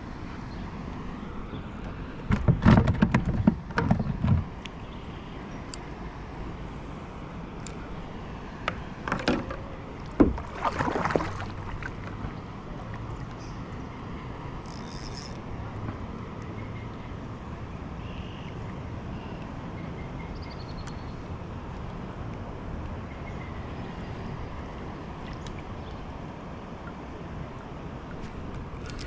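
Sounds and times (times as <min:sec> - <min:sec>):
rustling and clattering: 0:02.3 - 0:04.6, 0:08.7 - 0:10.4.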